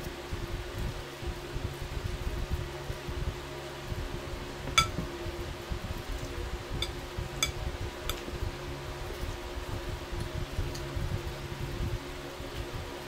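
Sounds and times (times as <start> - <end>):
low hum: 4.2 - 9.5
forks clinking on plate: 4.7 - 5.0.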